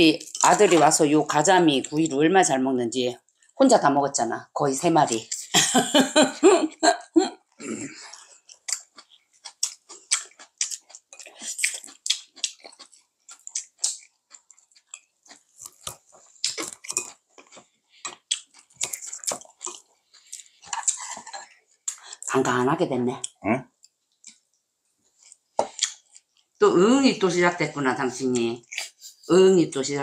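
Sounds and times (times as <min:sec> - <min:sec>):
people chewing and lip smacking: 0:03.2 - 0:03.6, 0:06.6 - 0:22.3, 0:23.2 - 0:26.6, 0:28.3 - 0:29.3.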